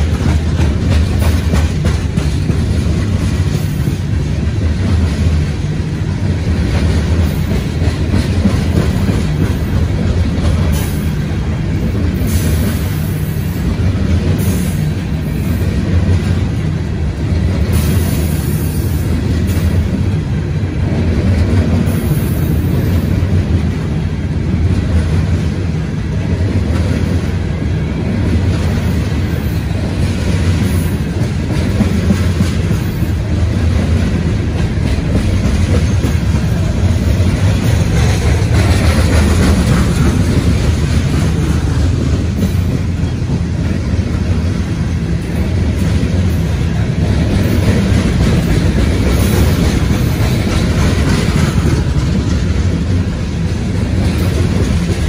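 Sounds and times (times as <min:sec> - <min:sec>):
freight train wheels rumbling: 0:00.0 - 0:55.0
clattering over rail joints: 0:30.0 - 0:44.6.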